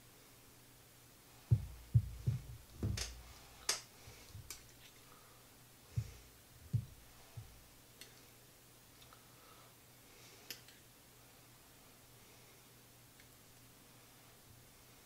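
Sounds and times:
knife knocking on glass jar: 1.5s - 3.2s.

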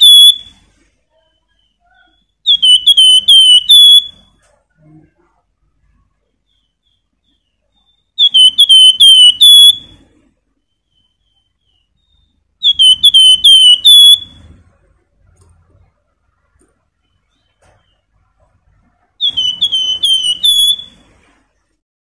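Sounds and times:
songbird whistling: 0.0s - 0.6s, 1.2s - 4.3s, 6.5s - 14.6s, 19.2s - 21.1s.

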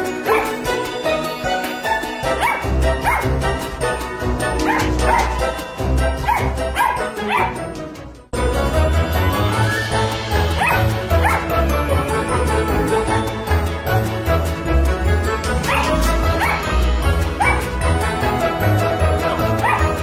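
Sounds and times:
puppy yipping: 4.6s - 5.5s, 6.2s - 7.6s, 10.6s - 11.5s, 15.6s - 16.6s, 17.4s - 17.7s, 19.3s - 20.0s.

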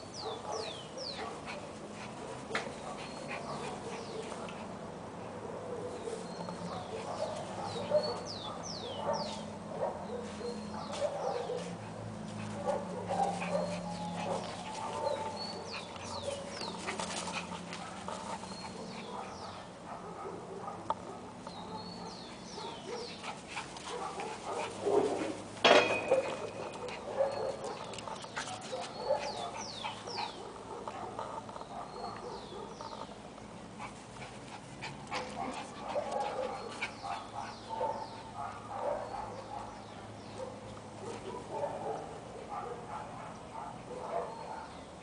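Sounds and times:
small dogs play-fighting: 0.0s - 20.0s, 20.7s - 43.8s.

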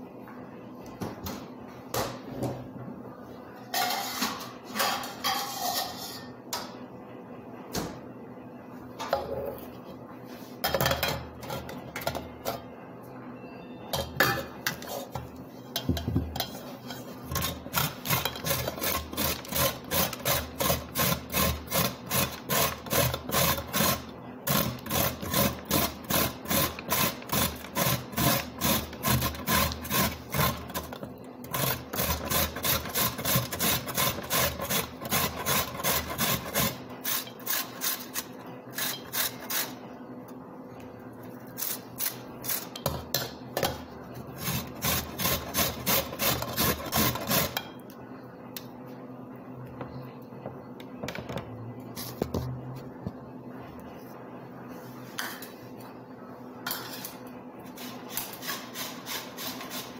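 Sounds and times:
carrot grated on metal grater: 16.4s - 39.8s, 44.4s - 47.7s.

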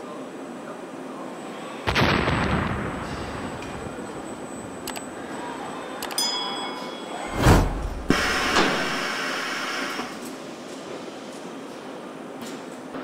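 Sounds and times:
sharp metallic click: 4.8s - 5.1s
whoosh with deep rumble: 7.3s - 9.0s
harsh hissing cutting noise: 7.6s - 10.2s.

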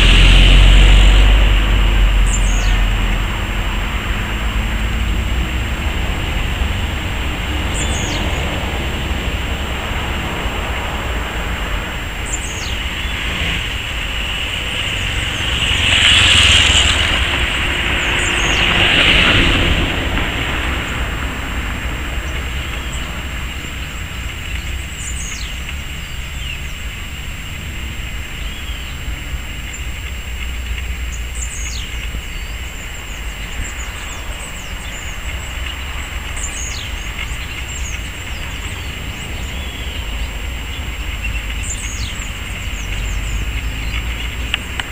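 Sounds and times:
bird call sweeping down: 0.0s - 3.3s, 12.0s - 18.8s
faint high whine: 0.0s - 44.8s
steady low rumble: 0.0s - 44.9s.

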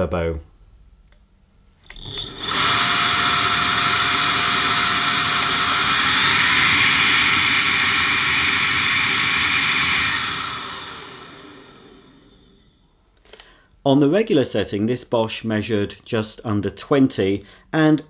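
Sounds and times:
cordless vacuum motor running: 1.9s - 12.7s.

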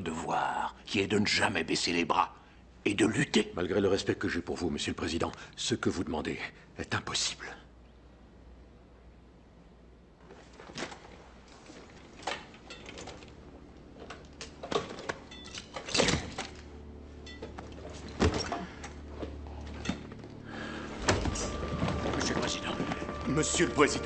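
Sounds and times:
wheelchair clicks knocks and thuds: 10.3s - 16.7s, 17.4s - 23.5s
low sustained film score: 11.3s - 24.0s.

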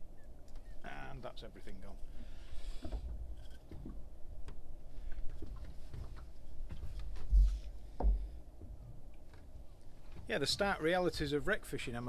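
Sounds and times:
dull low thumps: 2.8s - 10.7s.

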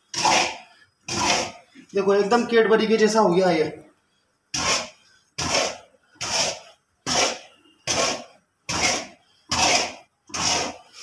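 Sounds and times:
metal stirrer scraping metal pot: 4.5s - 11.0s.

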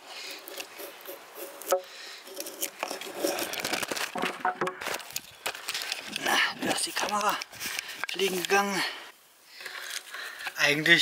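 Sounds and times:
knife scraping wood: 0.3s - 5.2s
camera knocking and falling: 4.0s - 5.0s.

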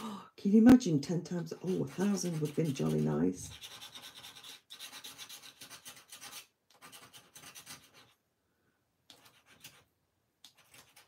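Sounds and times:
scratcher rubbing scratch card: 1.4s - 8.2s, 9.1s - 9.9s, 10.5s - 11.0s.

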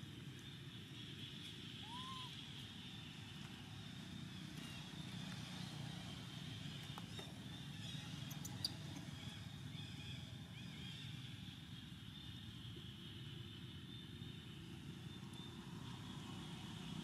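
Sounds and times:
faint high chirping: 0.4s - 3.1s.

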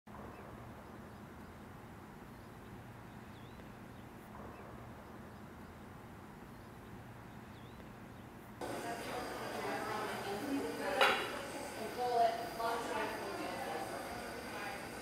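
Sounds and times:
low steady rumble: 0.1s - 8.6s
bird chirps: 2.3s - 5.9s, 6.5s - 8.4s.

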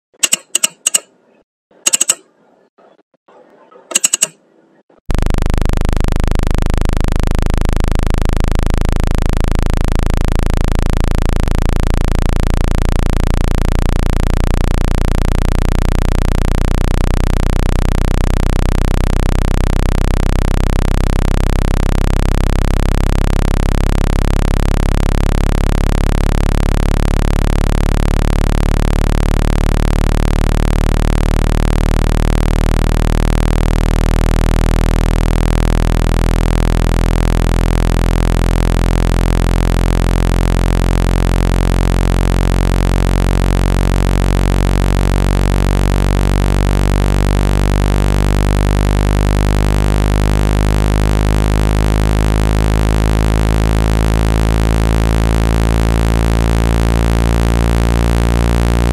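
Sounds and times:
short click: 0.2s - 2.4s, 3.9s - 4.4s.

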